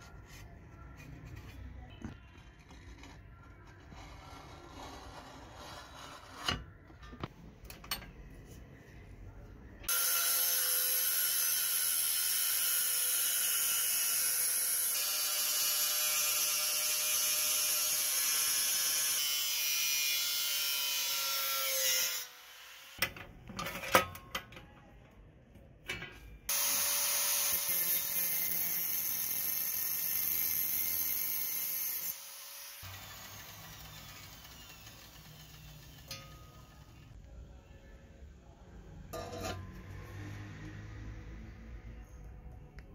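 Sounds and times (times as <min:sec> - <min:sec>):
angle grinder grinding metal: 0:26.5 - 0:36.9.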